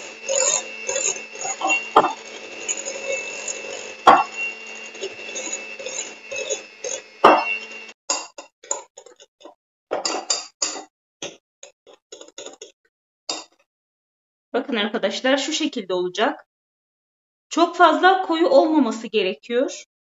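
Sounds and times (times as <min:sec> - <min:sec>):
electric hand mixer running: 0:00.0 - 0:08.0.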